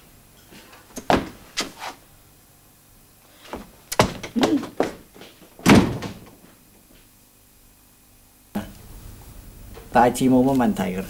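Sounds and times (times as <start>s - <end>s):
sharp knocks and thuds: 1.0s - 1.7s, 3.5s - 6.5s
slam: 5.6s - 6.4s.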